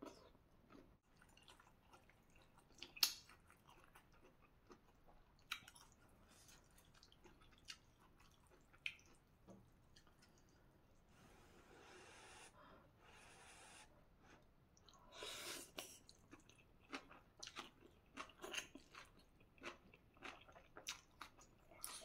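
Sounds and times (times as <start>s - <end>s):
quiet chewing: 0.0s - 11.1s, 14.2s - 22.0s.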